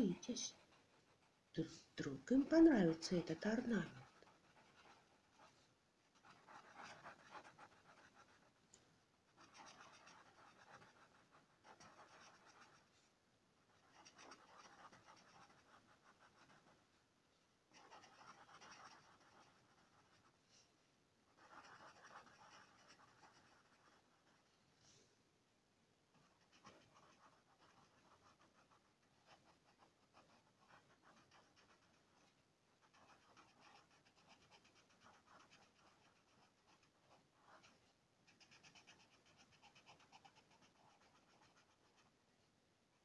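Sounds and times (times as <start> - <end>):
pencil scratching on paper: 0.0 - 8.6, 9.3 - 16.8, 17.7 - 20.4, 21.3 - 24.5, 26.1 - 42.2.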